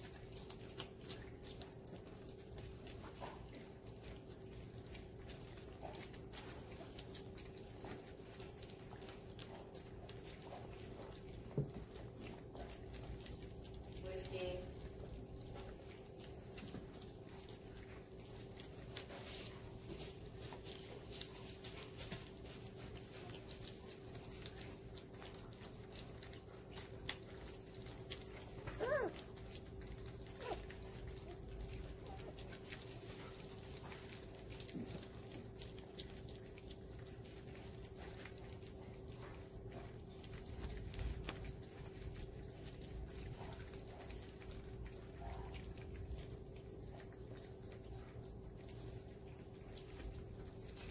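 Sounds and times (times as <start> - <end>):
low steady hum: 0.0 - 50.9
puppies lapping and chewing: 0.0 - 50.9
puppy whining: 26.7 - 32.9.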